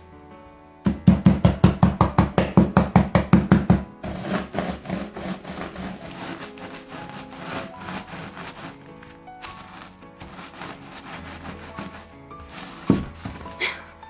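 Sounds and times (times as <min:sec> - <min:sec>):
rolling pin pounding crackers in bag: 0:00.9 - 0:13.7
rolling pin crunching crumbs: 0:04.0 - 0:13.8.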